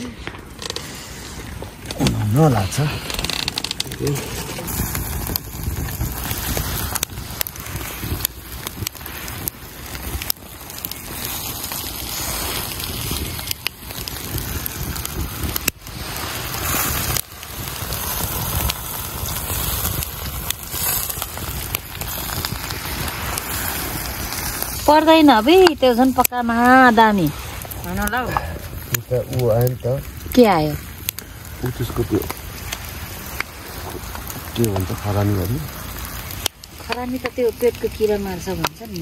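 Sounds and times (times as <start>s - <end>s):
wood fire crackling: 0.0s - 39.0s.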